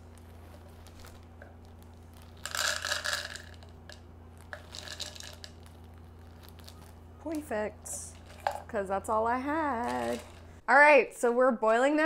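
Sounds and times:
steady low hum: 0.0 - 11.4
pellets rattling from crinkling bag: 2.0 - 3.7, 4.5 - 6.9, 9.7 - 10.5.

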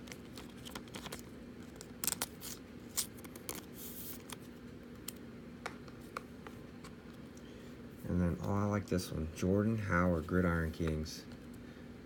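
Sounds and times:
foil wrapper crinkling: 0.0 - 4.4
faint steady hum: 0.0 - 12.0
wrapper tearing: 0.4 - 3.7.

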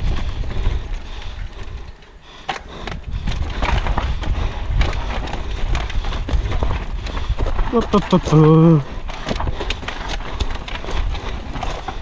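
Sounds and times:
wind rumble on microphone: 0.0 - 1.6, 2.8 - 7.8
bike parts rattling: 0.0 - 12.0.

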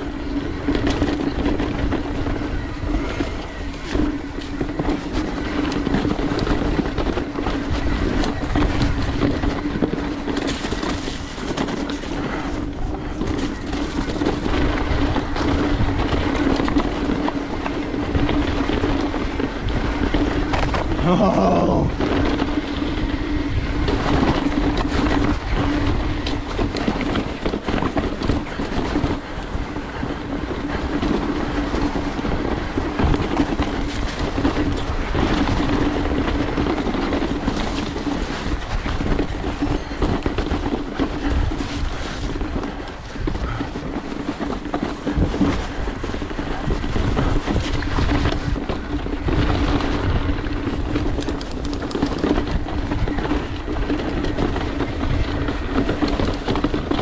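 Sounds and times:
bike rattling and clattering: 0.0 - 57.0
bike tyres rolling over dirt: 0.0 - 57.0.

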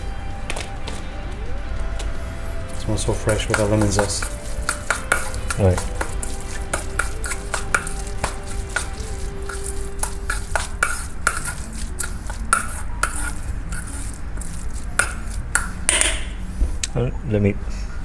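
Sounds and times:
metal spoon scraping steel bowl: 2.7 - 16.4.

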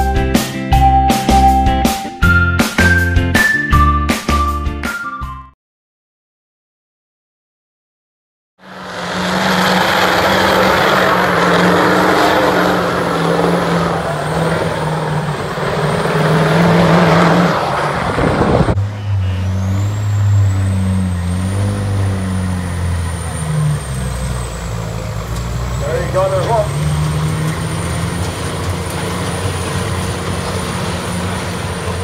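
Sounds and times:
deeper diesel engine: 8.6 - 32.0
diesel truck engine under load: 8.6 - 32.0.

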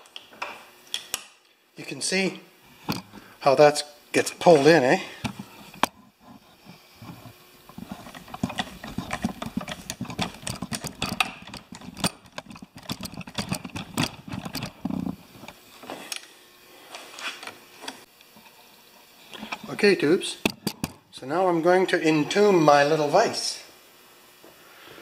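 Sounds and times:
vise clicking and rattling: 7.0 - 15.6.

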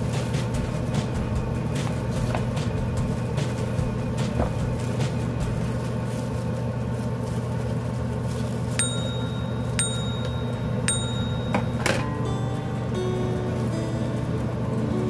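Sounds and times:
steady low hum: 0.0 - 15.0
bell-like dings: 8.8 - 14.3.

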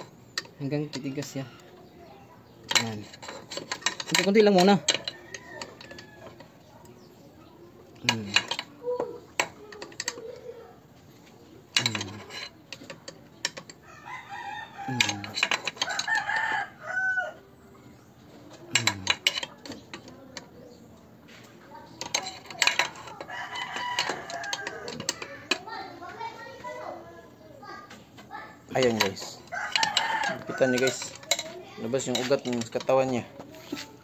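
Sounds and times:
rooster crowing: 0.6 - 2.0, 4.6 - 6.6, 13.8 - 17.6, 23.1 - 25.4, 29.0 - 31.3.

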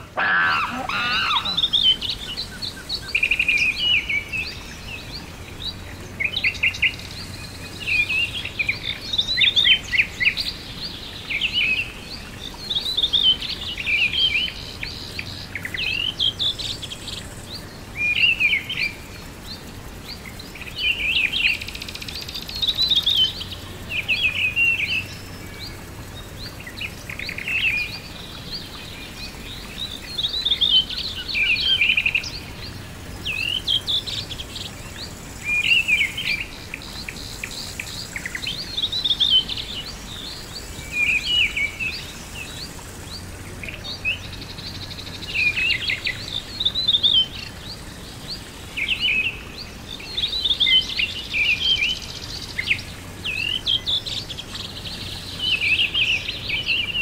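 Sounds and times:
birds chirping: 0.0 - 57.0
steady background hiss: 0.0 - 57.0.

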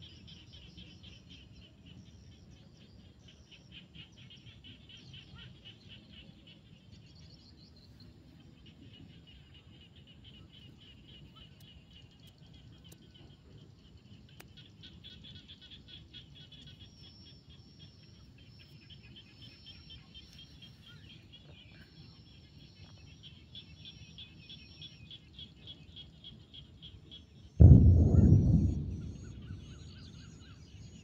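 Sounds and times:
frogs calling: 8.7 - 21.9.

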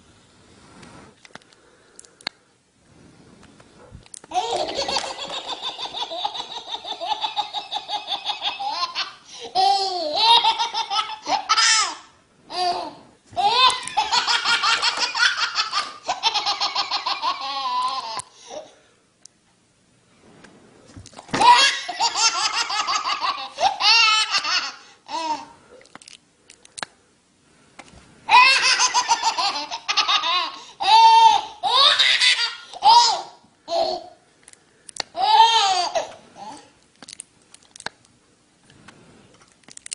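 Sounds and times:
baby laughing: 4.3 - 18.7, 21.3 - 25.6, 28.3 - 34.2, 35.1 - 36.7.

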